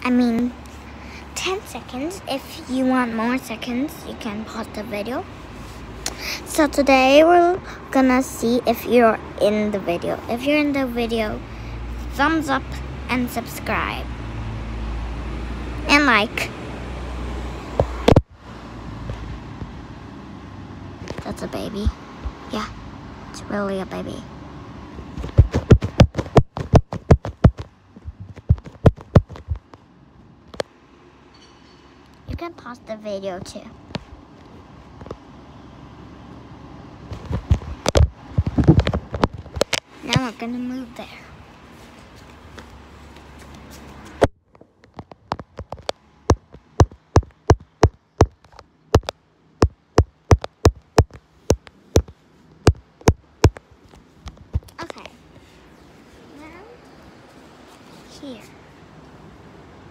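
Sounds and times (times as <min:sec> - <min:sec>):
rapid sharp tapping: 0:25.2 - 0:29.8, 0:45.1 - 0:53.7.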